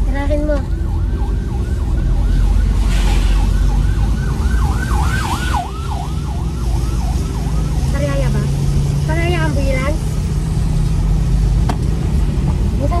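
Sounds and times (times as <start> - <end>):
ambulance siren yelping: 0.3 - 8.4.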